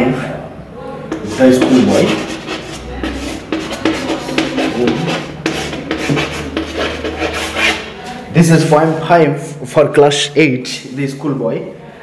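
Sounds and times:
chalk scratching on blackboard: 1.1 - 8.0.

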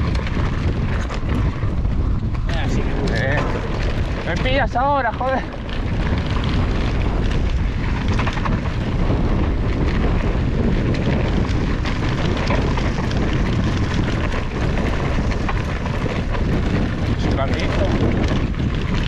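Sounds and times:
bike clicks and rattles: 0.0 - 19.0
wind buffeting microphone: 0.0 - 19.0.

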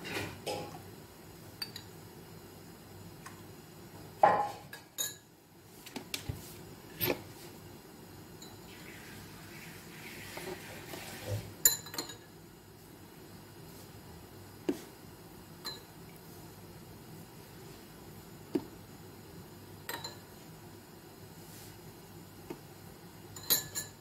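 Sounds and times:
spoon clinking against glass bowl: 23.4 - 24.0.

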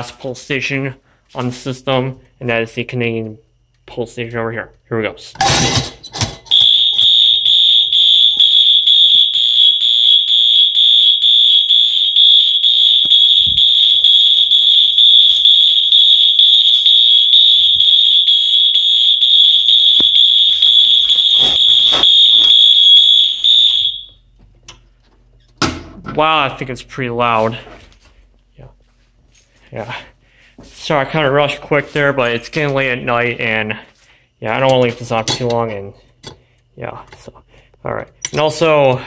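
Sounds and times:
fire alarm horn: 6.5 - 24.3.

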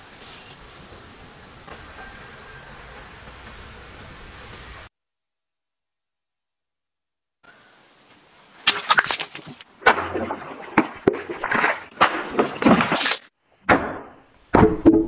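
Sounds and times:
blade cutting water bottles: 12.1 - 13.3.

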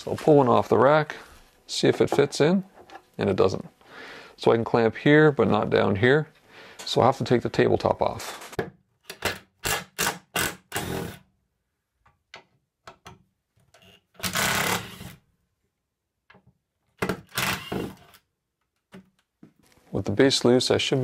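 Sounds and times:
cordless drill running in bursts: 17.3 - 17.8.

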